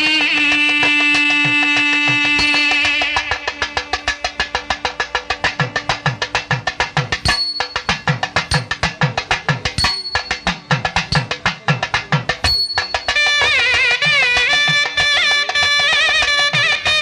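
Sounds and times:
steady held tone: 0.0 - 4.5, 7.2 - 14.9
wavering melody instrument: 0.0 - 16.9.

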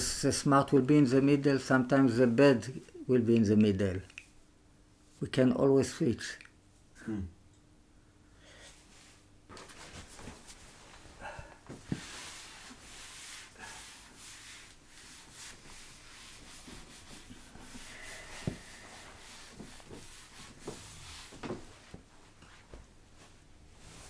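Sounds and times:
eraser rubbing whiteboard: 11.9 - 21.6.

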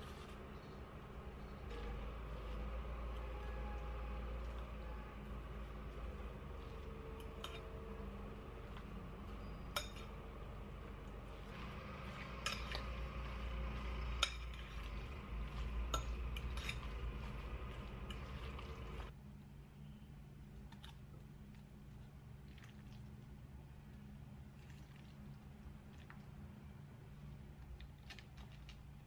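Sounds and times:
fork stirring salad: 4.4 - 19.1
fork clinking against glass: 9.7 - 10.2.

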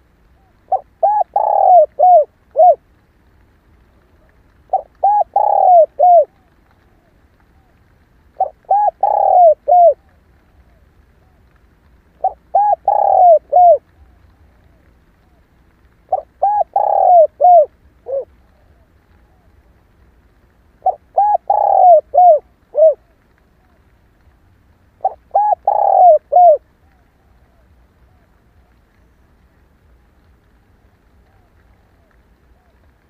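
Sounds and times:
dove cooing: 0.4 - 2.8, 4.2 - 7.8, 8.4 - 11.4, 12.2 - 15.4, 16.1 - 19.5, 20.8 - 23.8, 25.0 - 29.2.

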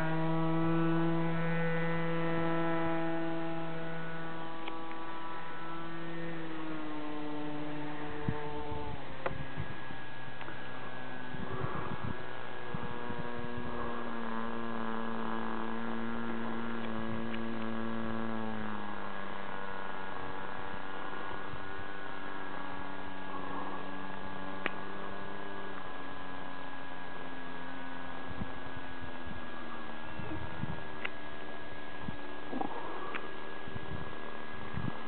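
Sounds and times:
model plane engine buzzing: 0.0 - 35.0.

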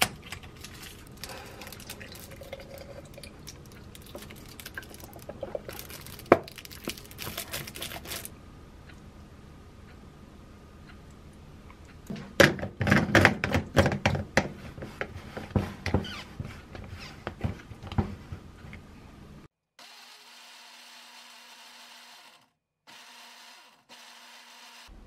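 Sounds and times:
blender motor running: 19.8 - 24.9.

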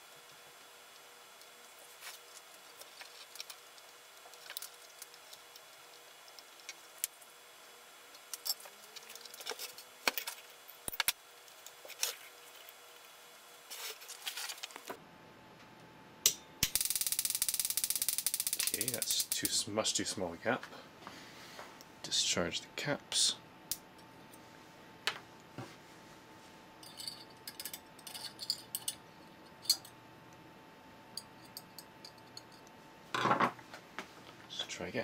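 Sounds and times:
spark gap crackling buzz: 0.0 - 15.0, 16.6 - 19.7.

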